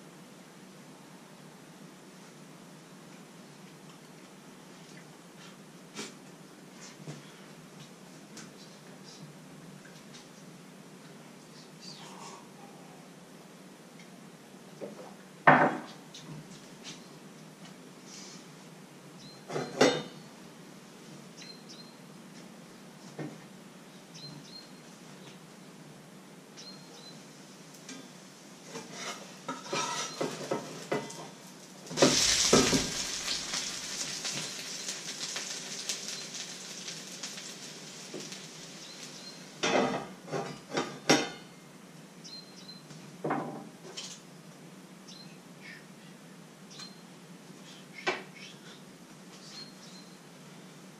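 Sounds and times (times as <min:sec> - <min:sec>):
batter sizzling in frying pan: 0:28.6 - 0:41.4
metal pans and utensils clinking: 0:28.8 - 0:36.7.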